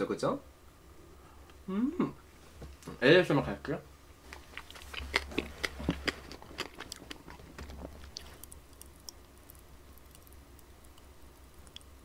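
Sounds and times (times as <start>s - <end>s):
chewing ice cream: 4.3s - 11.9s.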